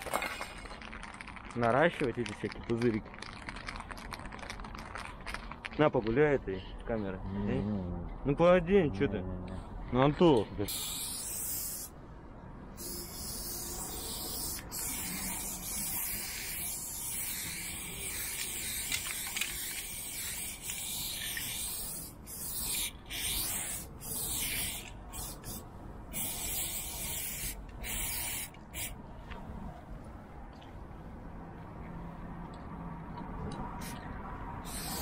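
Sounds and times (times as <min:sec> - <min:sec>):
spray paint can hissing: 0:10.7 - 0:11.9, 0:12.8 - 0:29.0, 0:34.6 - 0:35.0.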